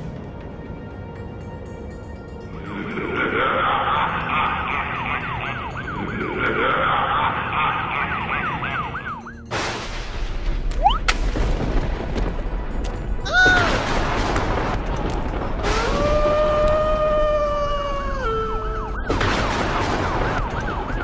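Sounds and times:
cartoon ambulance siren wailing: 0:02.9 - 0:09.5, 0:15.7 - 0:21.0.

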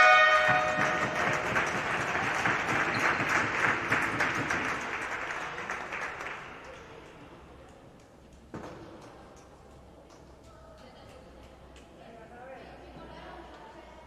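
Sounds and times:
dense clapping: 0:00.0 - 0:07.2.

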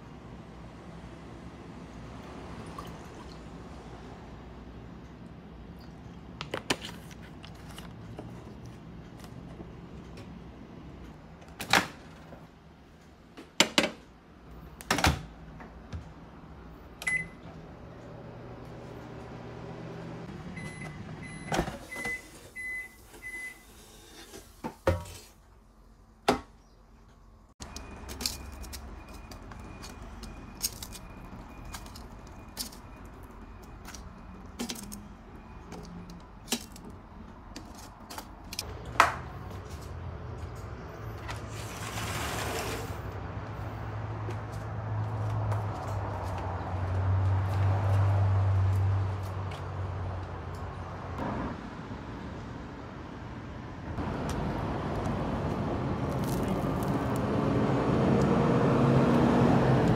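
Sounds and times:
keypad beeps: 0:17.0 - 0:17.4
microwave oven humming: 0:17.0 - 0:23.7.

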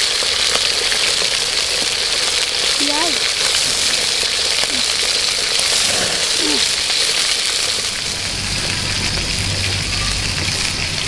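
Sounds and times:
eels sizzling in oil: 0:00.0 - 0:11.0
light rain pattering: 0:00.0 - 0:11.0.

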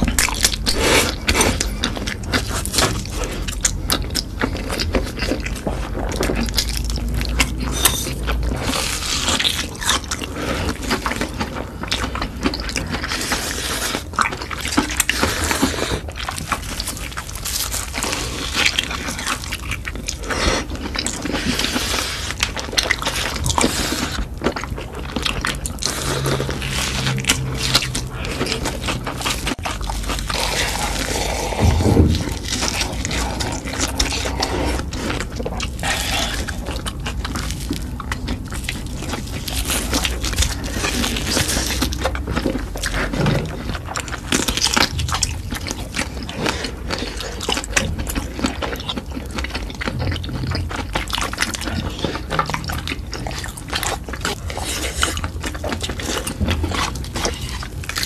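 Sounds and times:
slurping noodles: 0:00.0 - 0:06.0, 0:14.9 - 0:44.4
chewing: 0:00.0 - 0:58.0.

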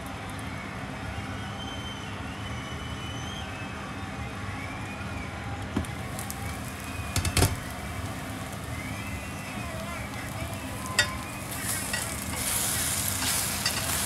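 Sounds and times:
food sizzling in a pan: 0:05.8 - 0:14.0.

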